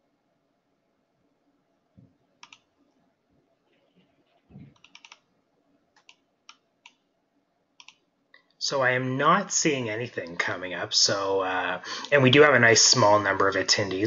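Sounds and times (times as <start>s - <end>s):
computer keys clicking: 2.4s - 2.7s, 3.7s - 5.3s, 6.0s - 7.0s, 7.8s - 8.0s.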